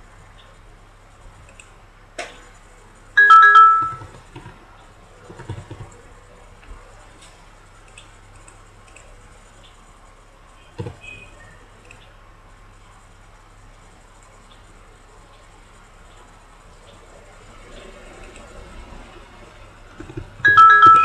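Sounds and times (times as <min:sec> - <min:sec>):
two-note electronic alert chime: 0:03.2 - 0:04.0, 0:20.5 - 0:21.0.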